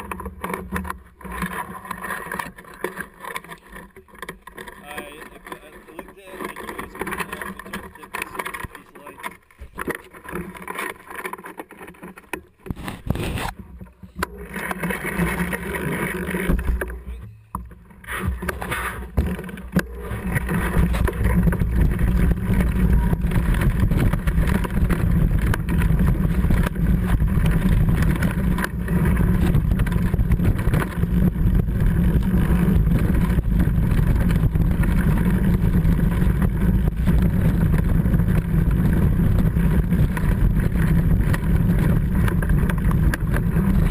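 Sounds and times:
tyre and trail rumble: 0:00.0 - 0:43.9.

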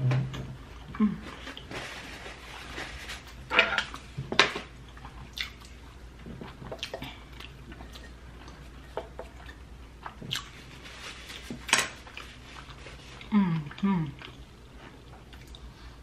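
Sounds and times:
wet chewing: 0:04.9 - 0:05.8, 0:06.4 - 0:10.6.

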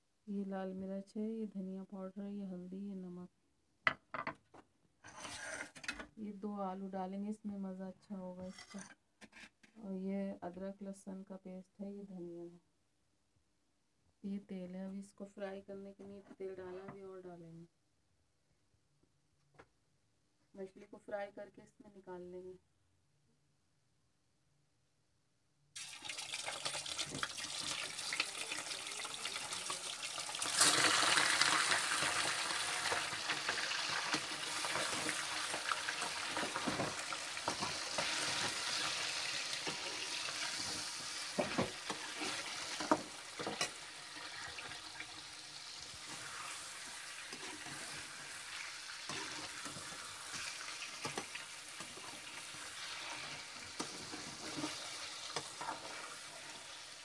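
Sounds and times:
fish sizzling in hot oil: 0:25.8 - 0:57.0.

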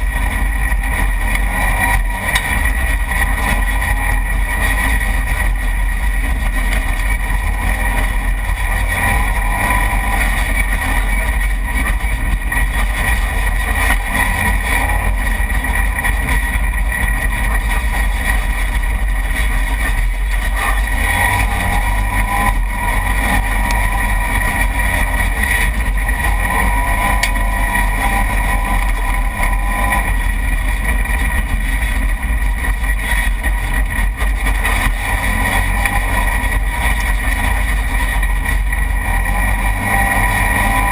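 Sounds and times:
off-road vehicle engine running hard: 0:00.0 - 0:40.9.

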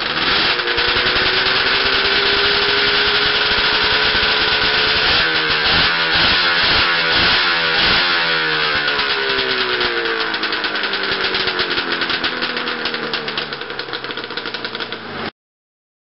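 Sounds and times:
two-stroke engine revving: 0:00.0 - 0:15.3.

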